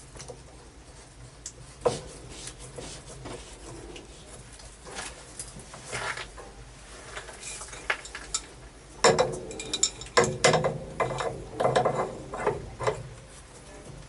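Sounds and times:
wrench clanking on metal pipe: 0:08.3 - 0:12.5.

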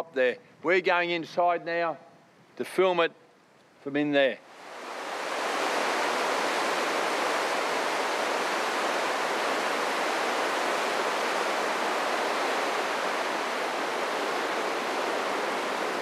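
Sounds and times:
water rushing through rock gorge: 0:04.4 - 0:16.0.

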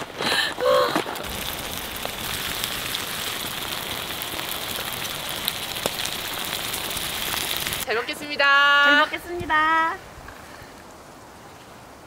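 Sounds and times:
food sizzling in a skillet: 0:01.2 - 0:07.9.

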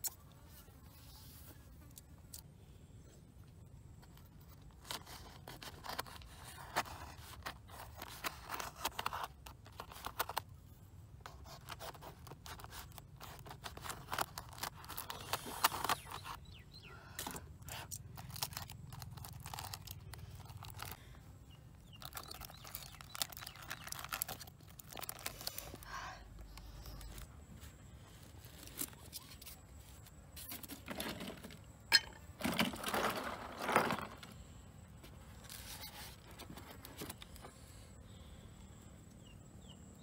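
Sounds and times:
foil crinkling and tearing: 0:11.5 - 0:16.4, 0:17.7 - 0:21.1, 0:21.9 - 0:26.0.

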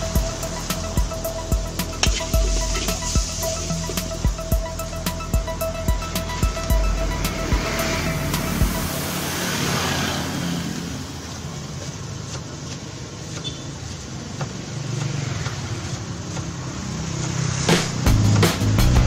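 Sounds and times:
gas burner roaring: 0:00.0 - 0:12.2.

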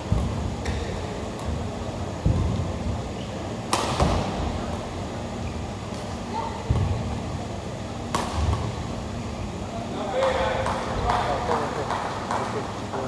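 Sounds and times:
racket hitting shuttlecock: 0:03.6 - 0:04.4, 0:08.0 - 0:08.8.

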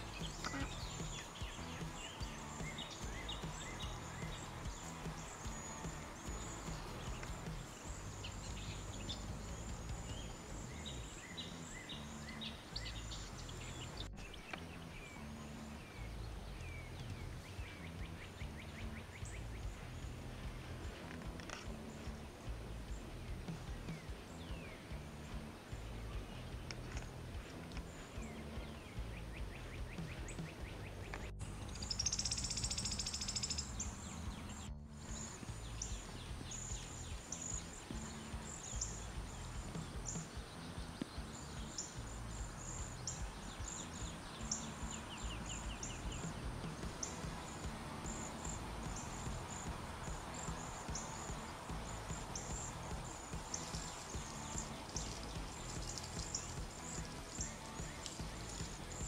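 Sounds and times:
birds singing: 0:00.0 - 0:59.0
low steady rumble: 0:00.0 - 0:59.0
short high bird chirps: 0:28.0 - 0:40.4.

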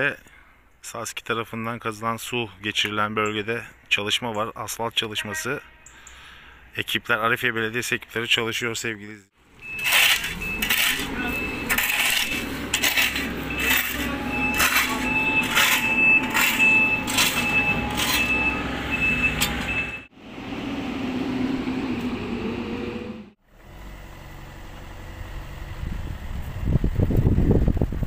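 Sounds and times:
diesel engine running: 0:09.4 - 0:28.0
shovels scraping asphalt: 0:09.6 - 0:18.6
repeated high beeping: 0:09.6 - 0:20.1.

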